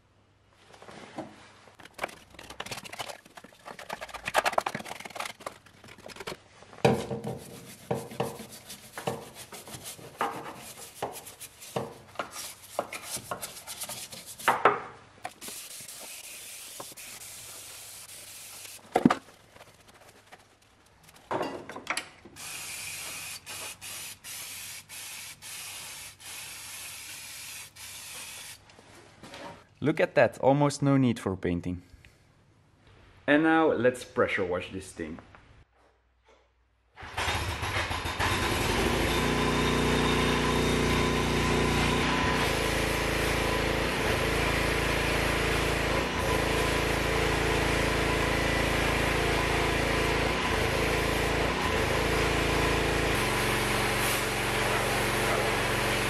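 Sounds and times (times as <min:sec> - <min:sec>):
scraping and scrubbing on metal: 0:07.0 - 0:14.6
pressure washer jet hissing: 0:15.4 - 0:18.8, 0:22.4 - 0:28.6
spray hiss: 0:15.4 - 0:18.8, 0:22.4 - 0:28.6.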